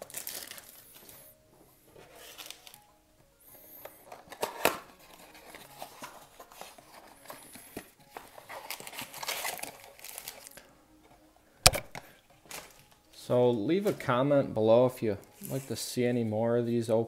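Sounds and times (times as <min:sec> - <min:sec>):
rustling and crinkling of foil packs: 0:00.0 - 0:02.9, 0:03.8 - 0:10.7, 0:12.0 - 0:14.2
cardboard box tearing: 0:08.2 - 0:10.5.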